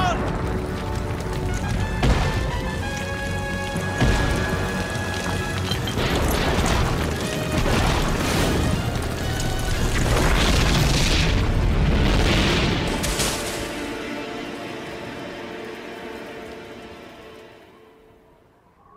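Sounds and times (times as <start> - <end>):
background music: 0.0 - 18.9.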